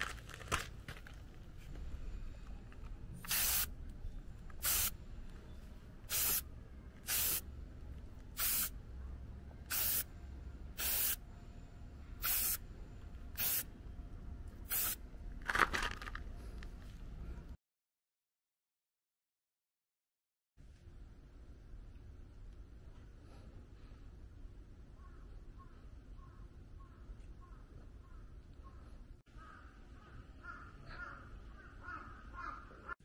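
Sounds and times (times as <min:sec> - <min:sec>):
aerosol can spraying: 0:03.3 - 0:03.7, 0:04.6 - 0:04.9, 0:06.1 - 0:06.4, 0:07.1 - 0:07.4, 0:08.4 - 0:08.7, 0:09.7 - 0:10.1, 0:10.8 - 0:11.2, 0:12.2 - 0:12.6, 0:13.4 - 0:13.6, 0:14.7 - 0:15.0.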